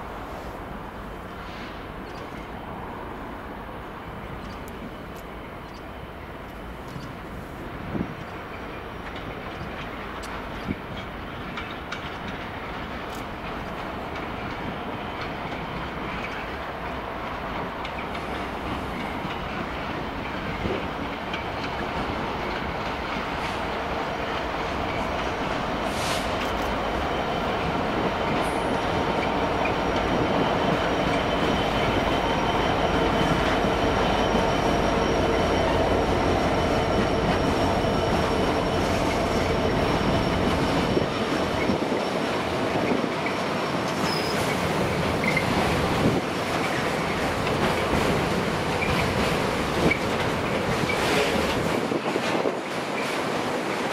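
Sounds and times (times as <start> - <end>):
train wagons rumbling on rails: 0.0 - 53.9
wheel squeal: 44.0 - 44.6, 45.2 - 45.5.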